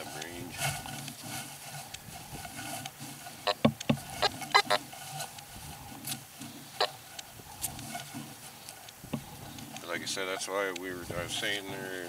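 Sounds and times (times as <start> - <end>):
metal detector beeps: 4.2 - 4.8.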